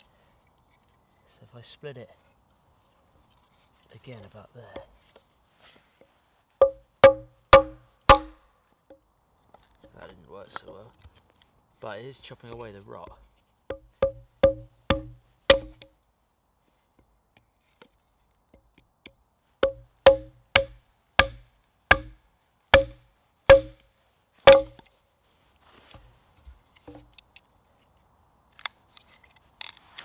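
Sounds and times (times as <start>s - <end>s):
axe chopping wood: 6.6s - 8.4s, 13.7s - 15.9s, 19.6s - 22.2s, 22.8s - 23.8s, 24.5s - 24.8s.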